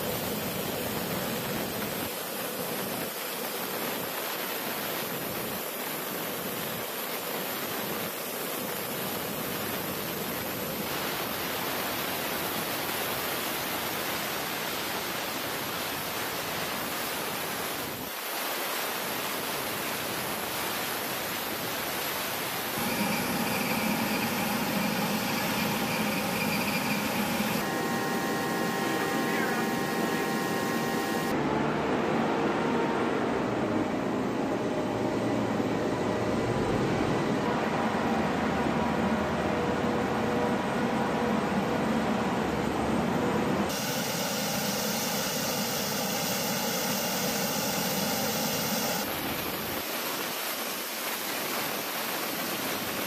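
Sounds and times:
faint steady tones: 22.8 - 31.4, 43.7 - 49.2
aircraft engines droning: 22.8 - 38.4, 43.7 - 49.2.

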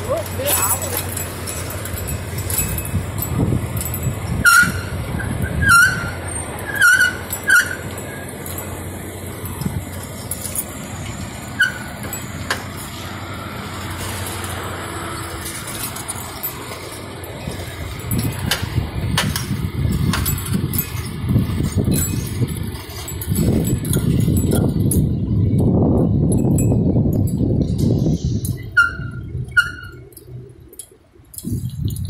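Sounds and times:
bicycle tyres rumbling on paving: 0.0 - 30.2
street noise: 0.0 - 32.0
short high squeaks and clicks: 4.4 - 8.3, 11.5 - 12.7, 28.0 - 30.8.

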